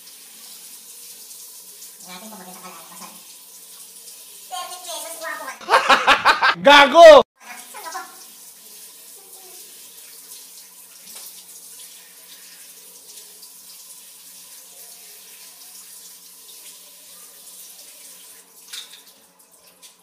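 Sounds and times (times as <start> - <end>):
shower spray splashing on tiles: 0.0 - 5.5, 7.4 - 20.0.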